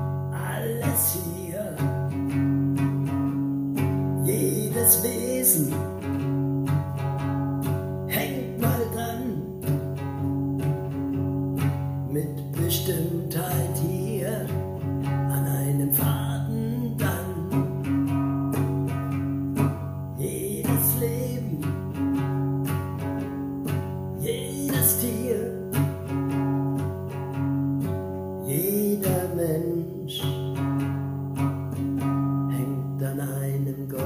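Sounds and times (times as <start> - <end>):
man singing: 0.0 - 2.6, 4.2 - 6.3, 8.0 - 10.2, 12.1 - 18.6, 20.1 - 22.4, 24.2 - 26.1, 28.4 - 30.9, 32.0 - 34.0
guitar strumming chords: 0.0 - 34.0.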